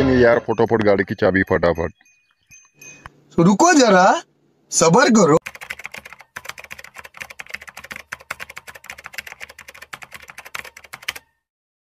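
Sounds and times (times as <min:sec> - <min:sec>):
keyboard typing clicks: 0:05.4 - 0:11.4.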